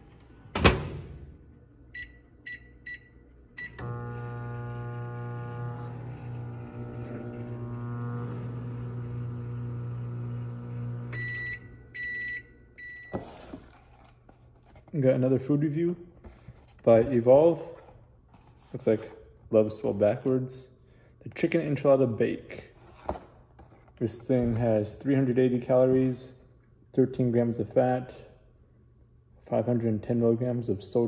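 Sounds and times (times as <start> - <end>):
microwave end beeps: 1.9 - 6.1, 7.8 - 13.2
microwave oven humming: 1.9 - 13.0.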